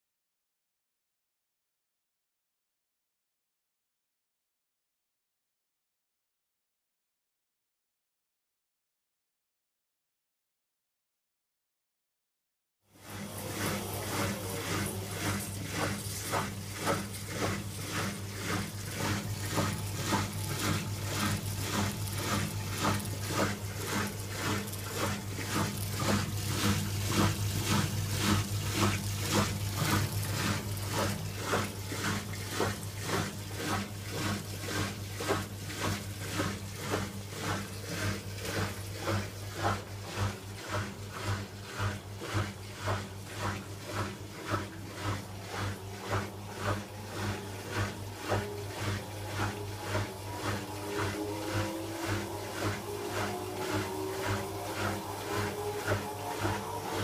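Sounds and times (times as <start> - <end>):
washer-dryer drum spinning: 12.9 - 57.0.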